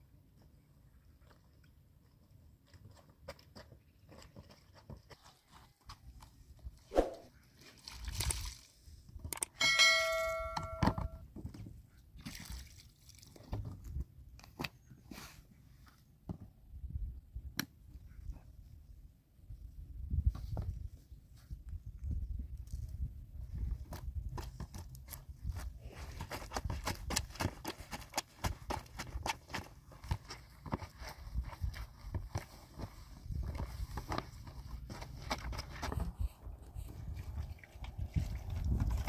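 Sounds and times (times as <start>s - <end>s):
sharp strike with bell-like ring: 9.6s - 11.2s
water sloshing in basin: 12.2s - 13.6s, 36.9s - 39.0s.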